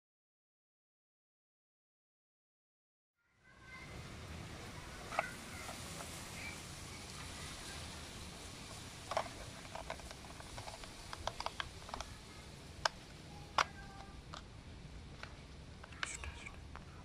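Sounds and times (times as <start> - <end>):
plastic toy clicks and snaps: 9.1 - 12.1, 12.8 - 14.5.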